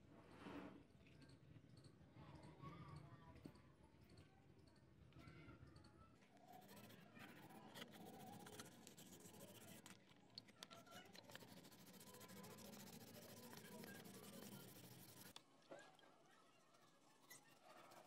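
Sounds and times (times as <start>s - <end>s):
sandpaper rasping on plastic: 6.5s - 10.0s, 10.7s - 15.3s, 17.3s - 18.0s.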